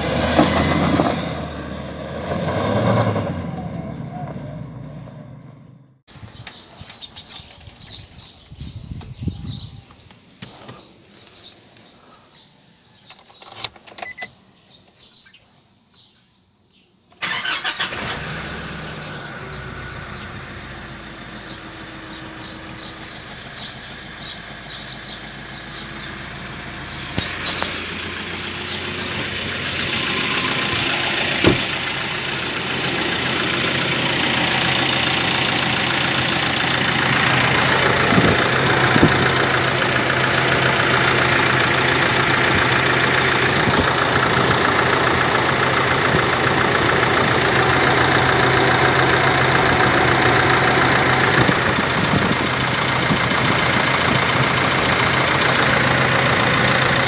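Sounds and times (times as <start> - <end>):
diesel engine idling: 17.2 - 57.0.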